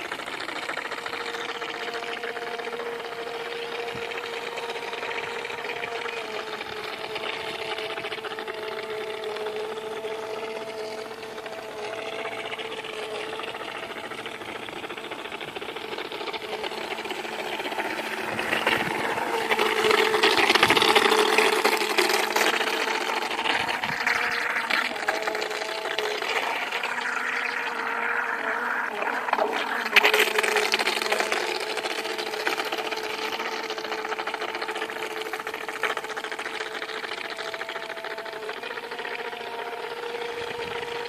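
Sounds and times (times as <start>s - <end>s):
model boat motor whining: 0.0s - 41.0s
water rushing hiss: 0.0s - 41.0s.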